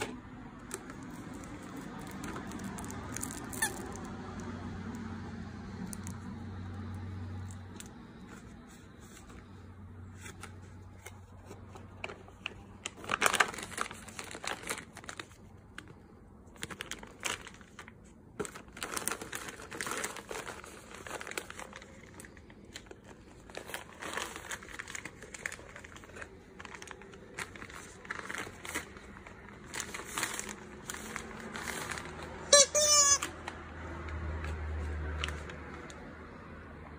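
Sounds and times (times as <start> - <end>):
plastic bags crinkling: 0.0 - 4.6, 10.8 - 33.6.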